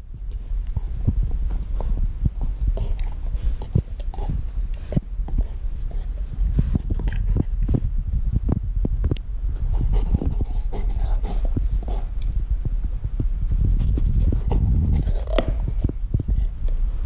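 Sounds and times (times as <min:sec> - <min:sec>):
dog gnawing and licking: 0:00.2 - 0:07.9, 0:09.6 - 0:12.4, 0:13.8 - 0:16.8.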